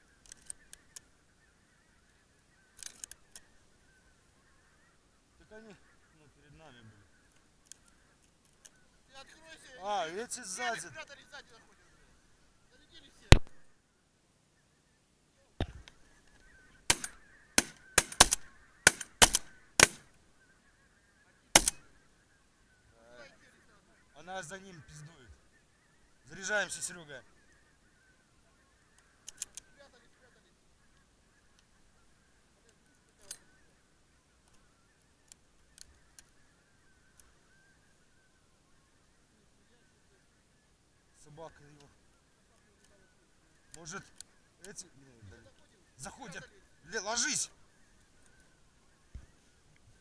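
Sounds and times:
geese honking faintly: 0:00.0 - 0:50.0
sharp close clicks and knocks: 0:16.9 - 0:20.0, 0:21.6 - 0:21.8
shotgun shots: 0:16.9 - 0:20.0, 0:21.6 - 0:21.8.

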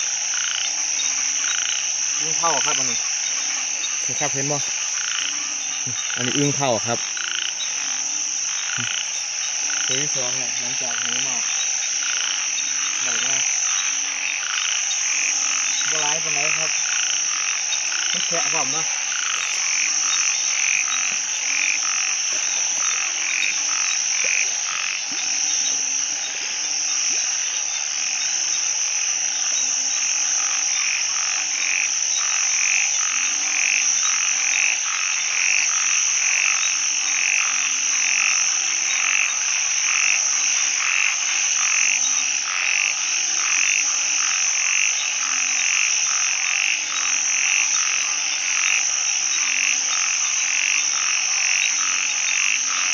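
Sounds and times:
frogs calling: 0:00.0 - 0:52.9
low frog croaks: 0:00.0 - 0:52.9.

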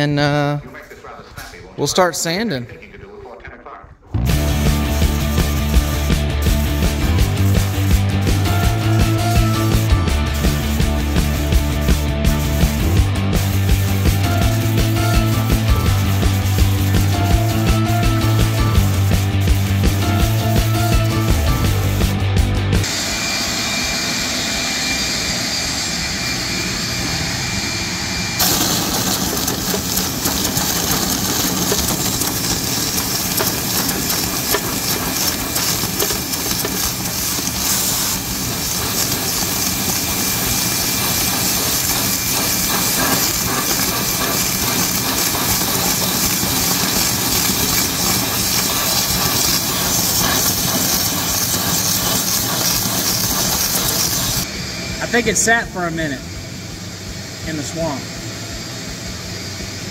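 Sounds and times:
shop vacuum whine: 0:04.2 - 0:59.9
compressed air hissing from blow gun: 0:04.4 - 0:22.0, 0:28.4 - 0:54.5.

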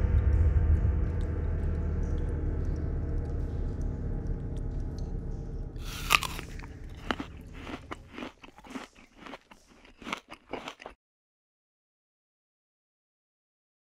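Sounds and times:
low musical drone: 0:00.0 - 0:08.2
crunching crackling clicks: 0:05.8 - 0:11.0.

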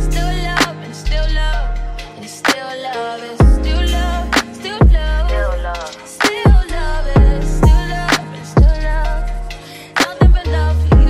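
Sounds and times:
deep bass notes: 0:00.0 - 0:02.1, 0:03.4 - 0:05.8, 0:06.6 - 0:09.6, 0:10.4 - 0:11.0
song with sung vocals: 0:00.0 - 0:11.0.

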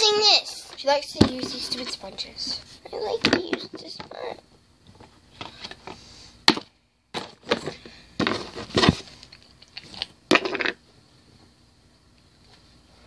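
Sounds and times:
makeup items knocking and rattling: 0:06.5 - 0:09.0.

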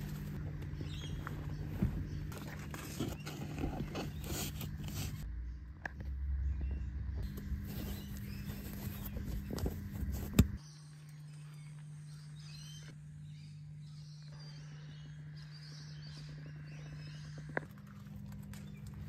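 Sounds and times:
birds chirping: 0:00.0 - 0:19.0
steady low hum: 0:00.0 - 0:19.0
rustling of seat cover: 0:07.2 - 0:10.6.

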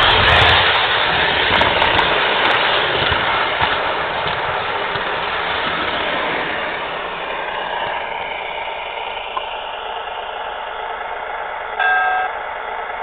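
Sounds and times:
model train running on track: 0:00.0 - 0:13.0
short multi-pitched tone: 0:11.8 - 0:12.4.

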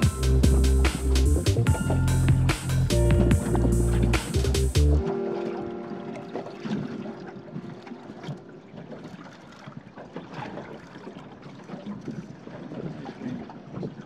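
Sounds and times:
water slapping against boat hull: 0:06.1 - 0:14.0.

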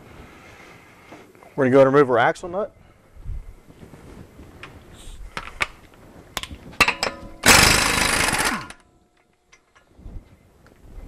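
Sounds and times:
impact wrench hammering: 0:06.8 - 0:08.8.

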